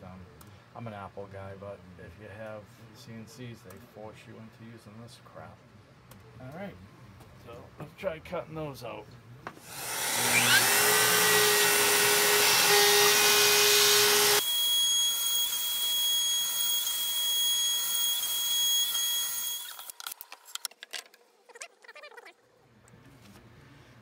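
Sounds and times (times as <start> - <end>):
shop vacuum running: 9.6 - 19.8
router spindle whine: 9.7 - 20.2.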